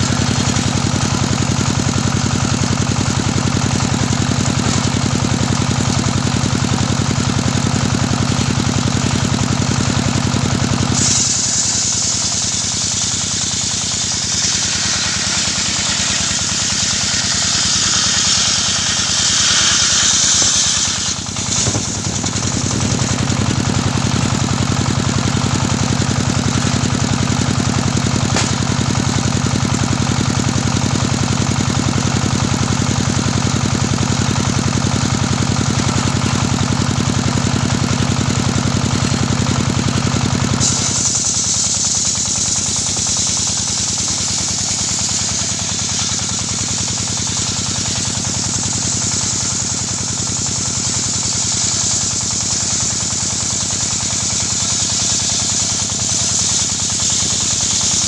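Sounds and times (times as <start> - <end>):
low engine drone: 0.0 - 51.4
saw blade cutting log: 7.0 - 33.2, 40.6 - 58.0.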